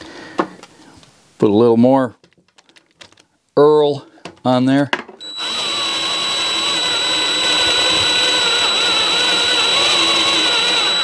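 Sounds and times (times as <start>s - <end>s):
drill whining into steel: 5.2s - 11.0s.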